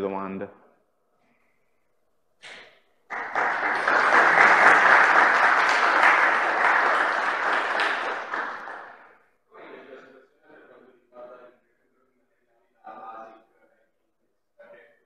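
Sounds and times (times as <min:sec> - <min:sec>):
audience applauding: 0:03.1 - 0:09.2.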